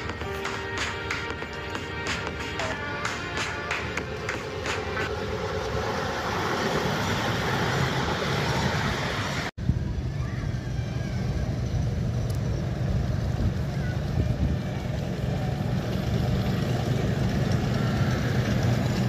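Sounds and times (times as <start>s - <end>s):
lower heavier rumble: 4.5s - 19.0s
miniature train wheels rumbling on rail: 10.7s - 19.0s.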